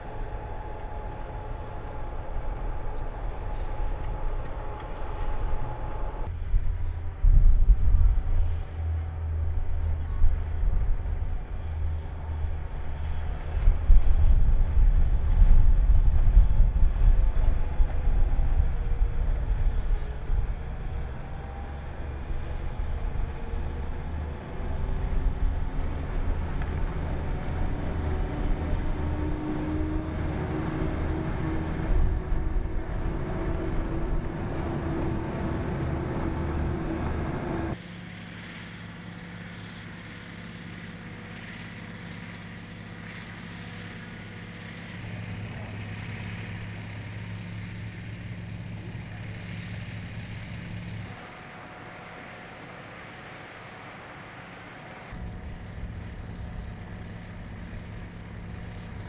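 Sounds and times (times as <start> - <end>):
rotary snowplow running: 0.0 - 7.2, 7.9 - 59.0
railcar rumbling on rack track: 0.0 - 37.8
faint rising whine: 0.0 - 59.0.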